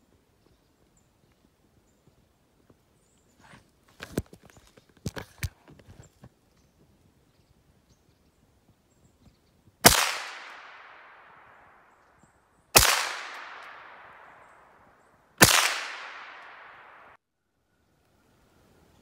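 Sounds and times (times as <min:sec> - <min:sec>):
gunshots with long echo: 0:09.8 - 0:12.0, 0:12.7 - 0:17.2.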